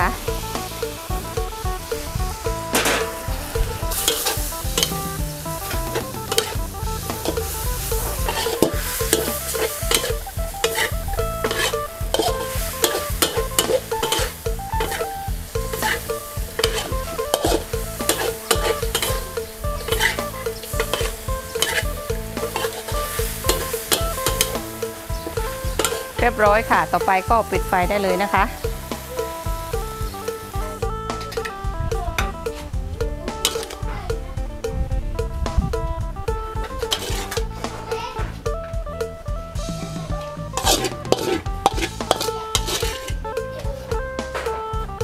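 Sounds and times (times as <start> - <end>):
food sizzling: 0.0 - 44.7
metal spatula scraping a wok: 2.3 - 28.4, 33.4 - 33.8, 36.8 - 38.2, 39.6 - 43.2.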